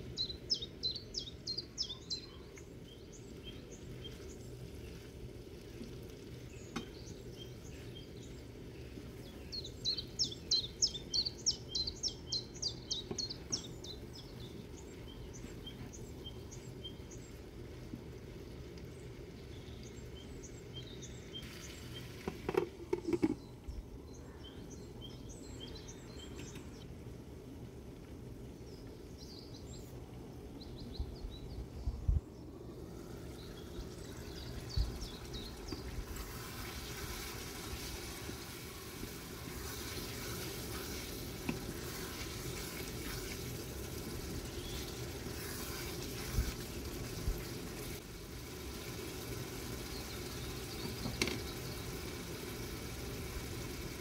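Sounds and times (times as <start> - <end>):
curry sizzling and bubbling: 0.0 - 23.5, 32.6 - 54.0.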